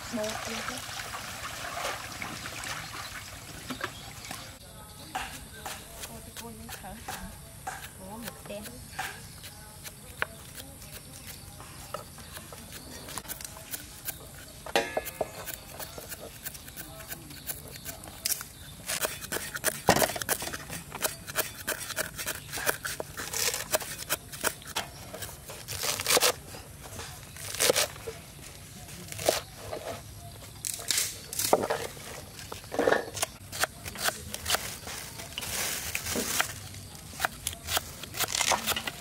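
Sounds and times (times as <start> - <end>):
cleavers chopping on wooden boards: 5.1 - 9.4.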